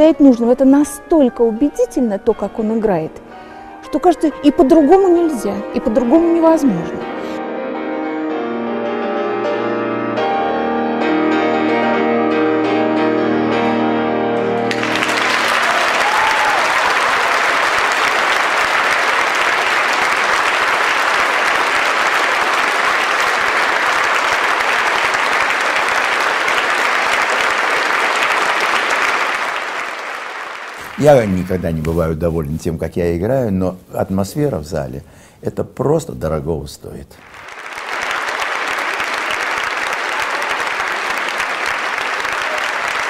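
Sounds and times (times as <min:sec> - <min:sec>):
grand piano with orchestra: 0:01.3 - 0:17.2
audience applauding: 0:14.5 - 0:32.2, 0:37.2 - 0:43.0.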